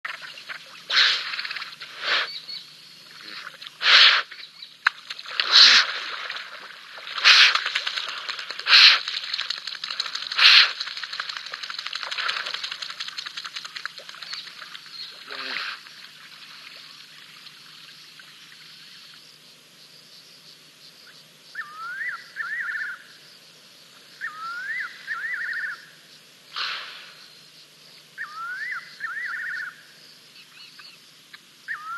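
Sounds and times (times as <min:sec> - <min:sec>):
hippos splashing in water: 0:05.0 - 0:16.9.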